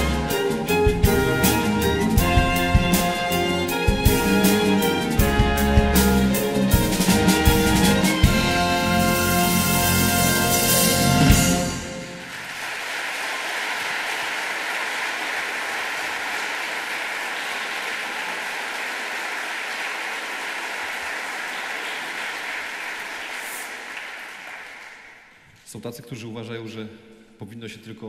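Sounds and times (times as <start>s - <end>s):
orchestra closing chord: 0.0s - 12.3s
audience applauding: 11.0s - 25.4s.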